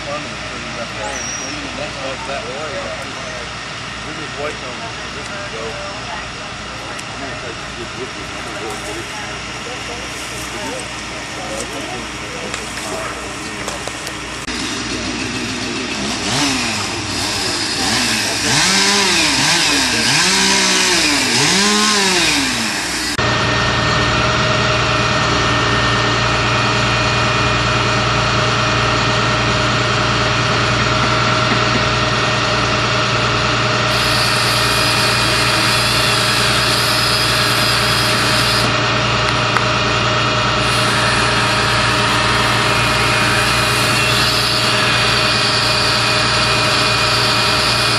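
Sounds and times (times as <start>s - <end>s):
engine running steadily: 0.0s - 47.9s
chainsaw revving: 7.5s - 47.9s.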